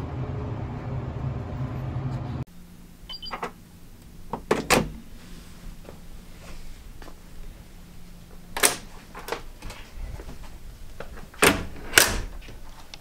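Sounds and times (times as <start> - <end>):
door lock clunk: 4.3 - 5.0, 11.3 - 12.4.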